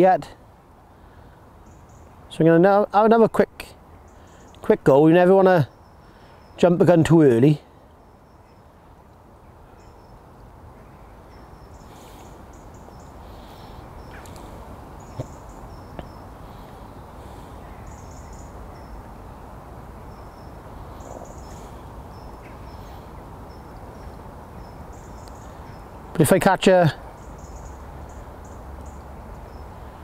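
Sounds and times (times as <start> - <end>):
steady background hiss: 0.0 - 30.0
small birds chirping: 1.0 - 30.0.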